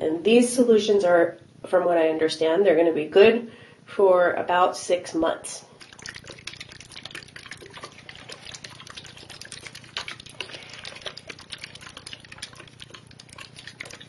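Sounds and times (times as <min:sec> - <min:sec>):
water pouring into a bottle: 0:05.7 - 0:14.0.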